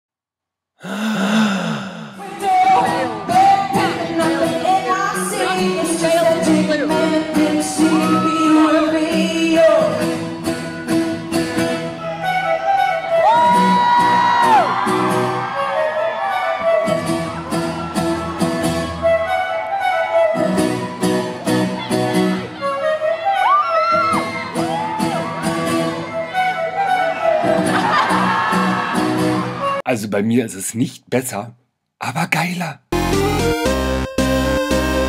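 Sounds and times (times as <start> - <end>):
woman singing: 2.2 - 10.2
crowd cheering: 11.9 - 29.8.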